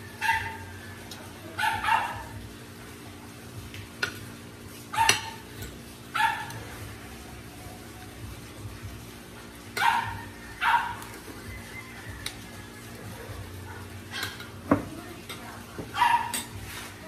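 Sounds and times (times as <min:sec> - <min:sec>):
dog barking: 0:00.2 - 0:00.6, 0:01.6 - 0:02.4, 0:04.9 - 0:05.4, 0:06.1 - 0:06.6, 0:09.8 - 0:11.1, 0:13.2 - 0:14.4, 0:15.9 - 0:16.5
cutlery clicking on plate: 0:04.0 - 0:04.2, 0:14.1 - 0:15.5, 0:16.2 - 0:16.6.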